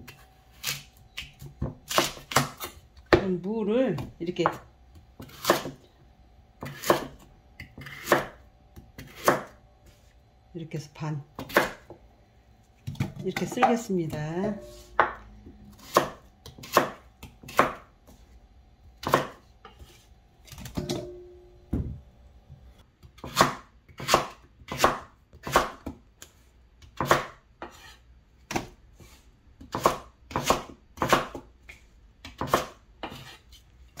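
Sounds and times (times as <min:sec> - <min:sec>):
knife chopping on wooden board: 0:05.2 - 0:05.8, 0:06.6 - 0:09.6, 0:11.4 - 0:12.0, 0:12.8 - 0:18.2, 0:19.0 - 0:20.0, 0:23.0 - 0:26.0, 0:26.9 - 0:27.9, 0:28.5 - 0:31.5, 0:32.2 - 0:33.4.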